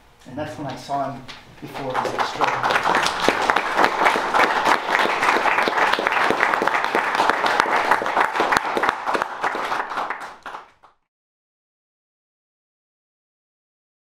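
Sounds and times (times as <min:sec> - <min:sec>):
audience applauding: 0:01.6 - 0:11.0.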